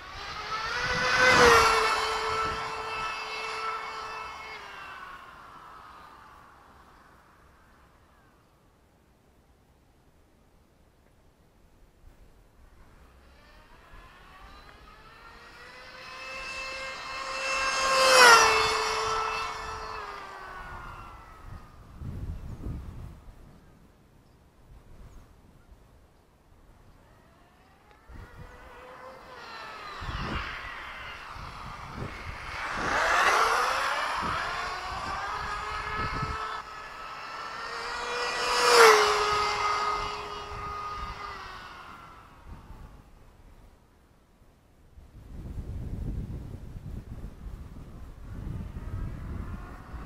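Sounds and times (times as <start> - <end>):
rc car motor and gears whine: 0.0 - 8.4, 12.7 - 23.2, 26.8 - 43.4, 47.7 - 50.0.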